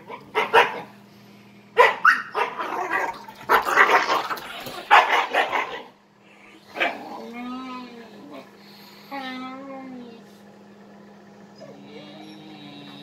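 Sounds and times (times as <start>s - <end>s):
dogs barking: 0.0s - 1.0s, 1.7s - 7.4s.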